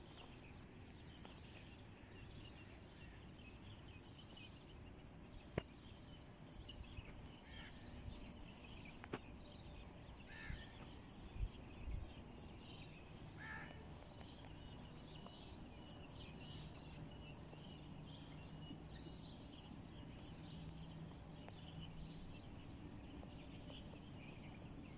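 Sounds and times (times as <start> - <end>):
small birds chirping: 0.0 - 24.9.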